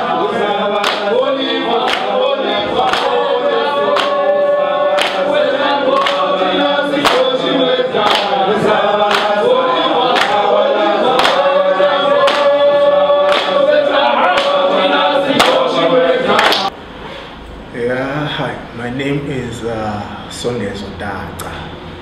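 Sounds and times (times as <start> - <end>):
group singing in harmony: 0.0 - 16.8.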